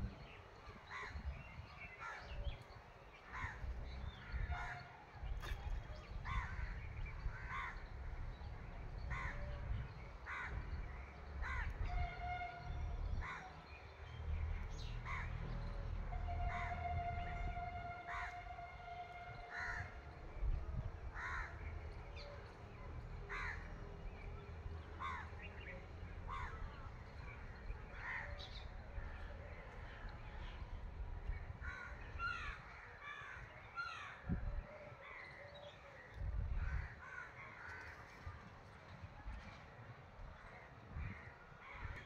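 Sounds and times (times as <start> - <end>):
crows cawing: 19.5 - 19.9, 21.2 - 21.5.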